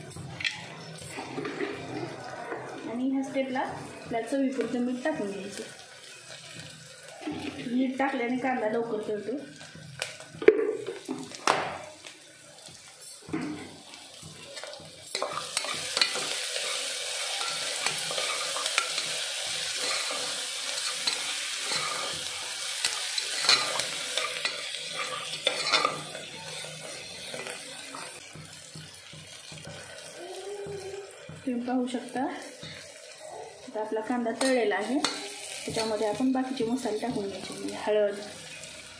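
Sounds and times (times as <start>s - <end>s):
onions sizzling in oil: 0.0s - 38.9s
metal spatula scraping pot: 15.1s - 19.1s, 19.8s - 22.2s, 22.8s - 28.1s, 37.0s - 37.8s.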